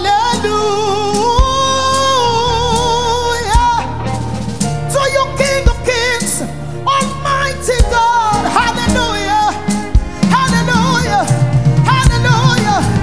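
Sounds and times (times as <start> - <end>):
band playing gospel music: 0.0 - 13.0
drum hits: 9.9 - 13.0.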